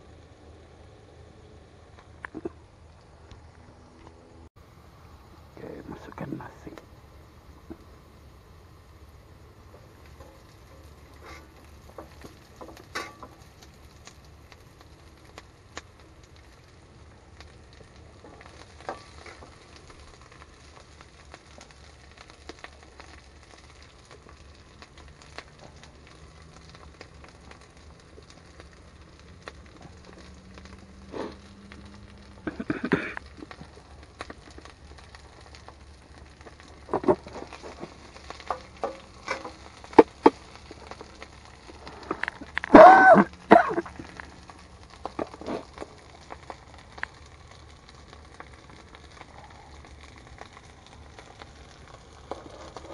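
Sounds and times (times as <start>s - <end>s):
rice sizzling in a wok: 0.0s - 3.5s, 4.6s - 52.9s
stirring scrapes against wok: 9.8s - 13.3s.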